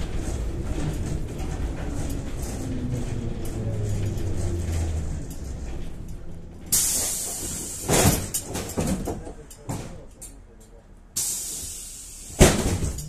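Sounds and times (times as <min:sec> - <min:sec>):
low hum: 0:00.0 - 0:07.8
body clunks and rattles: 0:00.0 - 0:10.4, 0:12.4 - 0:13.0
compressed air hiss: 0:11.2 - 0:12.5.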